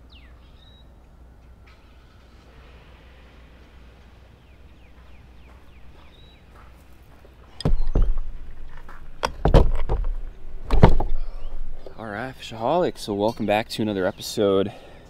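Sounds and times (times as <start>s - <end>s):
trolling motor knocking onto mount: 7.6s - 8.4s, 9.2s - 11.3s
faint bird chirps: 11.2s - 12.0s.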